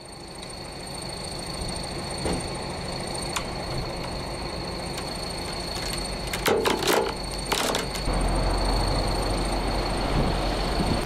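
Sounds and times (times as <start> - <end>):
vehicle engine idling: 0.0 - 11.0
clicks and knocks: 5.0 - 8.1.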